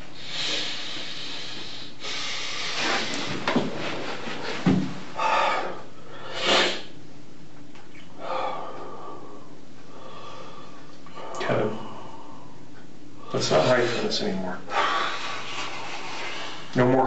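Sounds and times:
man breathing hard and sniffing: 0.0s - 7.0s, 8.2s - 12.6s, 14.7s - 16.8s.

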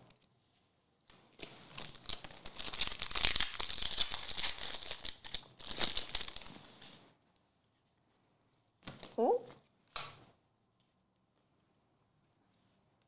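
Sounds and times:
foil wrapper crinkling: 1.4s - 6.8s.

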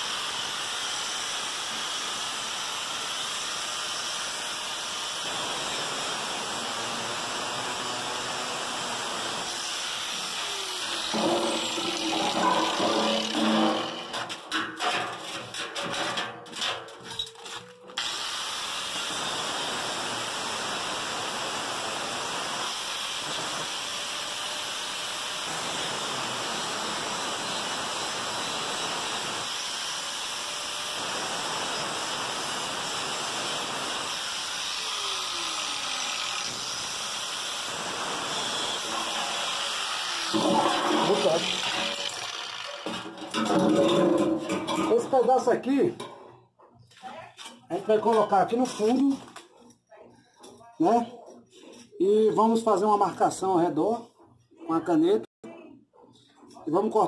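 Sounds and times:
angle grinder cutting steel: 0.1s - 15.9s, 32.0s - 46.1s
knocks and clatter: 11.1s - 17.3s, 40.4s - 45.2s.

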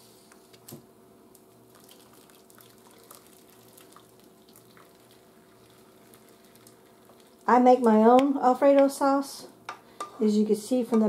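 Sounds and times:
thick sauce being poured: 1.7s - 7.5s.

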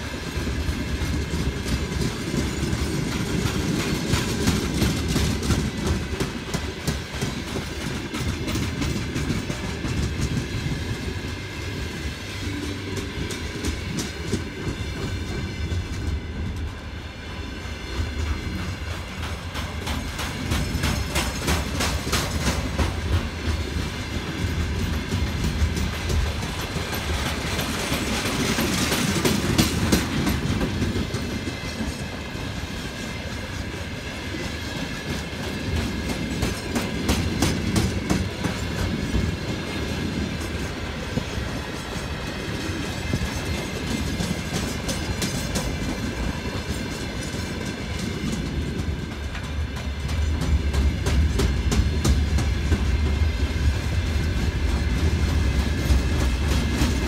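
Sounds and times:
train wheels rumbling on rail: 0.0s - 57.0s
wheels clicking over rail joints: 0.4s - 11.4s, 18.0s - 57.0s.

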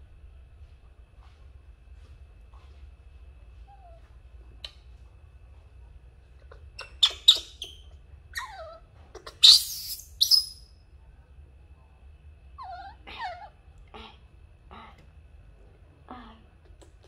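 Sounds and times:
baby monkey squeaking and screeching: 6.7s - 10.6s.

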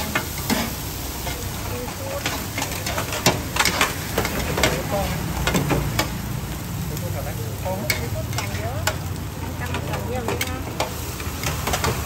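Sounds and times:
metal spatulas scraping a griddle: 0.0s - 6.1s, 7.8s - 9.0s
frying sizzle: 0.0s - 12.0s.

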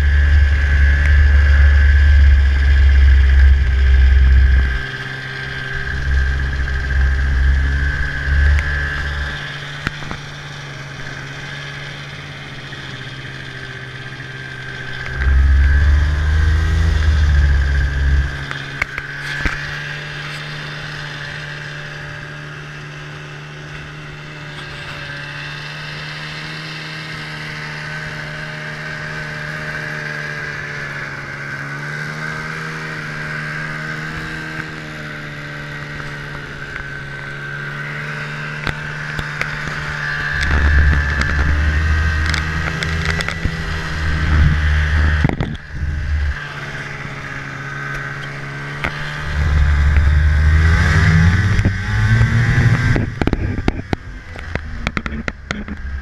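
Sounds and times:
heavy low rumble: 0.0s - 11.8s, 12.4s - 20.4s, 38.8s - 56.0s
snowmobile engine running: 0.0s - 56.0s.

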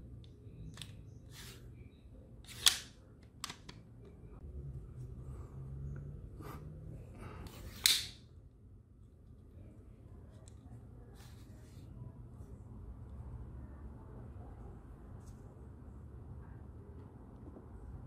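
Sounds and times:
plastic parts snapping: 7.8s - 8.2s.

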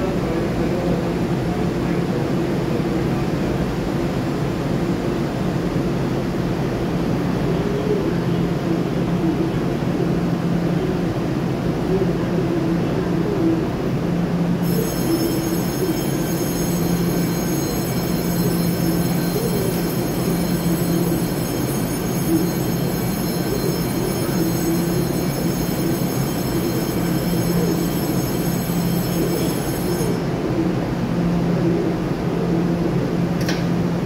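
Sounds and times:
electric train humming: 13.7s - 34.0s
high-pitched electrical whines: 14.6s - 30.6s.

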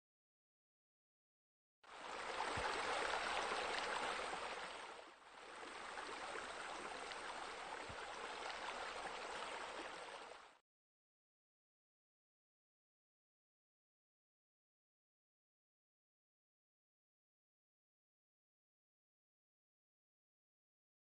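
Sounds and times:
pool bubblers splashing water: 1.9s - 10.5s.

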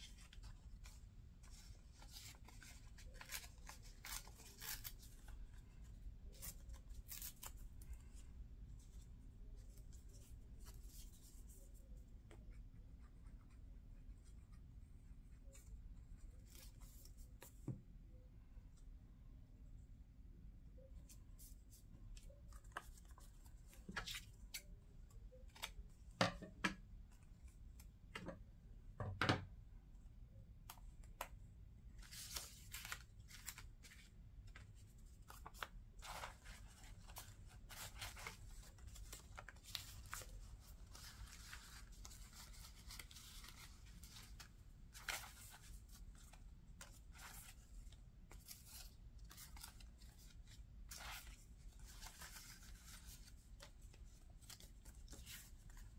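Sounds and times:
paper rustling: 0.0s - 11.9s, 32.0s - 55.9s.

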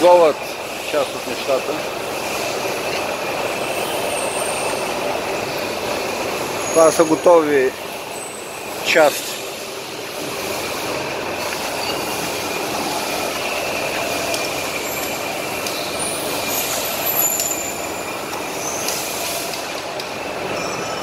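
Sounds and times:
metalworking machines din: 0.0s - 21.0s
thin high machine whine: 0.0s - 21.0s.

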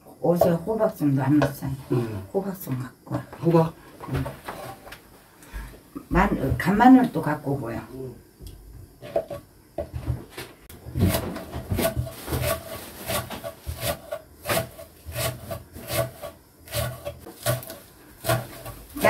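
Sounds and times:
knife chopping on wooden board: 11.0s - 18.8s.

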